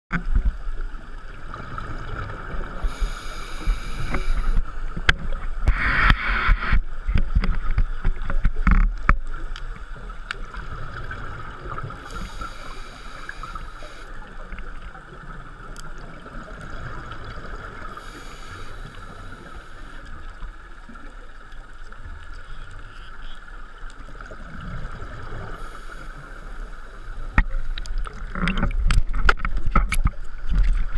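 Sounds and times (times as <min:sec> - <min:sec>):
regulator breathing hiss: 0:02.8 - 0:04.6, 0:12.0 - 0:14.2, 0:17.9 - 0:20.2, 0:25.5 - 0:27.8.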